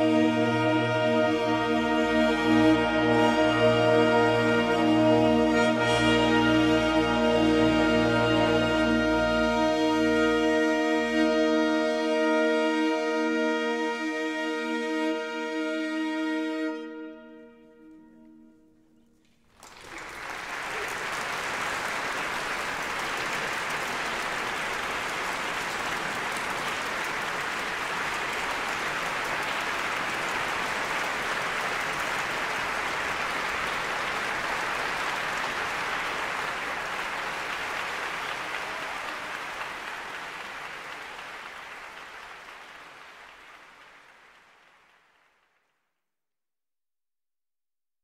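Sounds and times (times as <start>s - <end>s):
audience applause: 19.2s - 45.8s.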